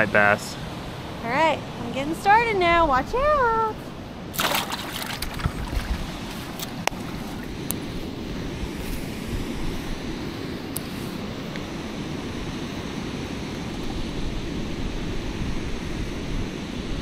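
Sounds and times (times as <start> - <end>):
water pouring over a dam: 4.4 - 6.2.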